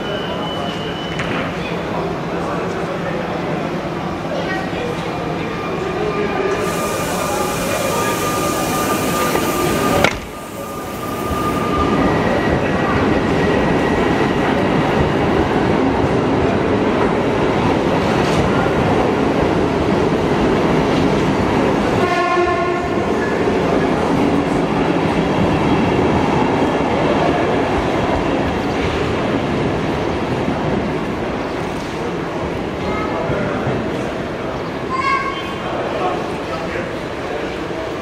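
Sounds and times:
electric train rolling past: 0:00.0 - 0:34.9
train horn: 0:22.0 - 0:23.0.

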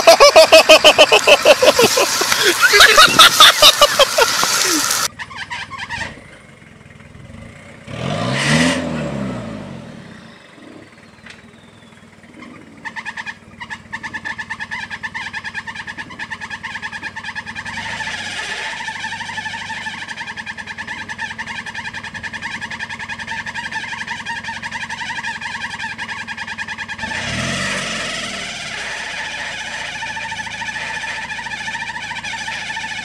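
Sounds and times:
engine pulsing over rocks: 0:00.0 - 0:05.1
mud spraying: 0:00.0 - 0:05.1
engine revving: 0:00.0 - 0:06.4, 0:07.1 - 0:11.5, 0:12.1 - 0:33.0
truck engine with tyres spinning: 0:00.0 - 0:33.0.

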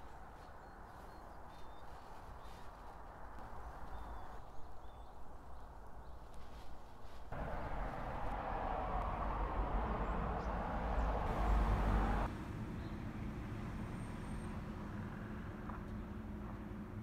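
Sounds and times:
low wind noise: 0:00.0 - 0:13.6.

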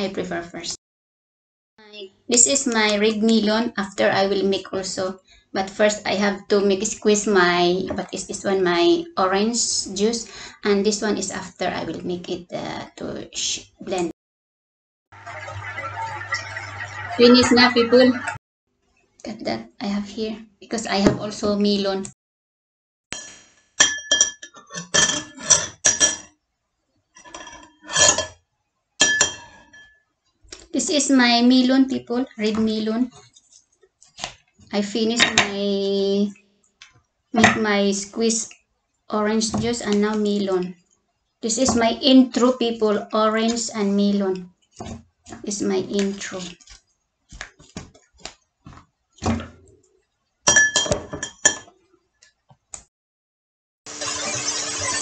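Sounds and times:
metal utensil clinking on glass: 0:23.2 - 0:26.3, 0:29.0 - 0:30.0, 0:50.5 - 0:51.7.

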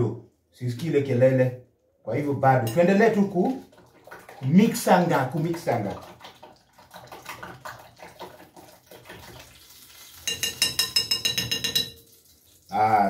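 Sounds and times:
utensil beating eggs in glass bowl: 0:02.7 - 0:09.6, 0:10.2 - 0:12.1
glass bowl ringing: 0:10.3 - 0:12.0.

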